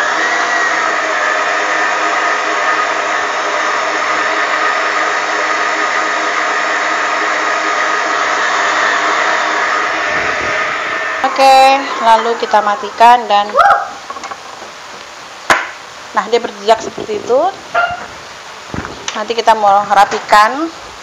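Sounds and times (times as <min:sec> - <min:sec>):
stand mixer whipping batter: 0:00.0 - 0:09.4.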